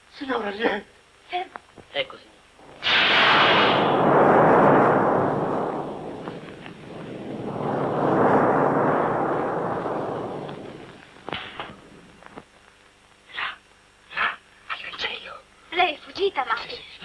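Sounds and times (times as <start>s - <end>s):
thunder rolling: 2.6s - 12.2s.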